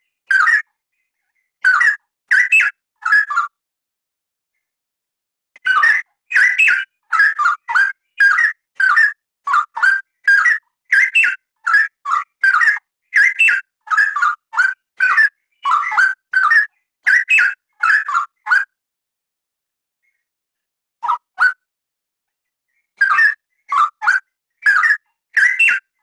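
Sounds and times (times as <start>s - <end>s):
bird singing warbled whistles: 5.6s - 18.7s, 23.0s - 26.0s.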